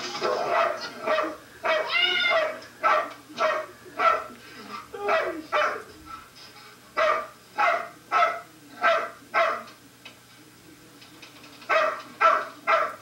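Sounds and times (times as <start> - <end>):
dog barking: 0.2 - 4.3, 5.0 - 5.9, 7.0 - 9.7, 11.7 - 13.0.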